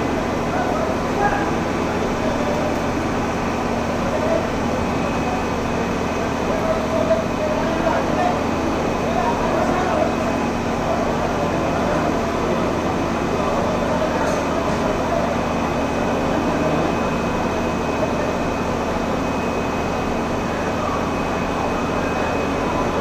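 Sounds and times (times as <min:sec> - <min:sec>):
fire engine running: 0:00.0 - 0:23.0.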